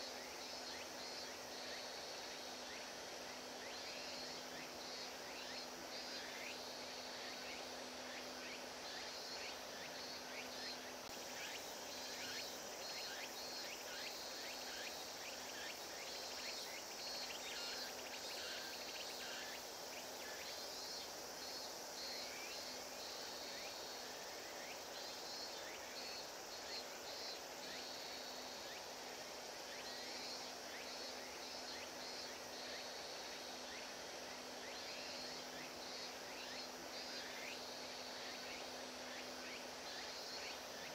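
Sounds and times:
background hiss: 0.0 - 40.9
insects chirping in pulses: 0.0 - 40.9.

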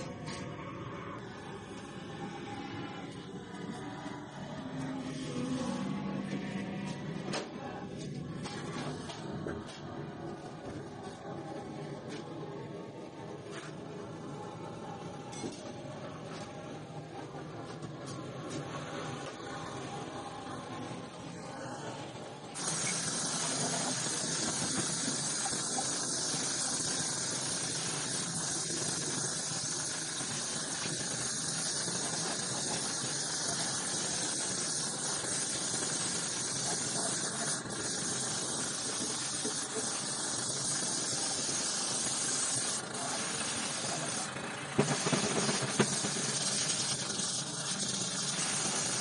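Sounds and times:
spray gun hissing: 22.6 - 49.0.

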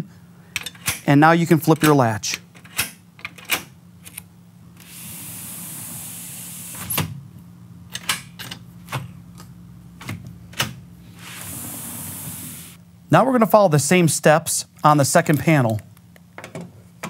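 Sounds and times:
latch and handle clicks: 1.7 - 4.2, 7.9 - 9.0.

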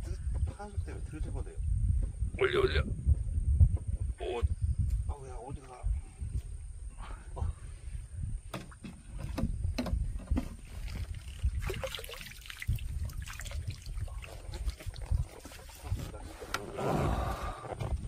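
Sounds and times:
water splashing and dripping: 10.7 - 15.8.

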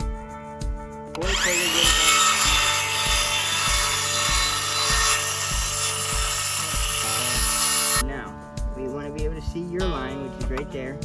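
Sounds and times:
background music with beat: 0.0 - 1.4, 8.0 - 11.0
circular saw cutting wood: 1.2 - 8.0.

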